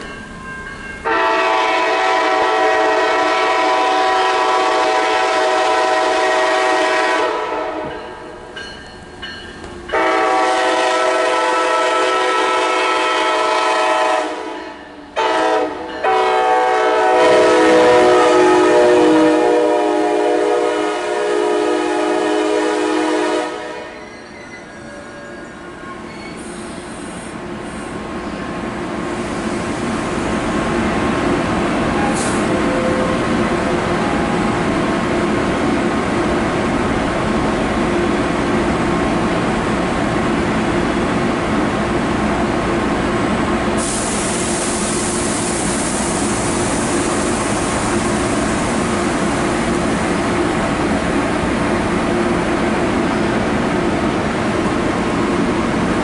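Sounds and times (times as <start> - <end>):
train rumbling past: 0.0 - 56.0
train horn blasts: 1.0 - 8.1, 9.9 - 24.1.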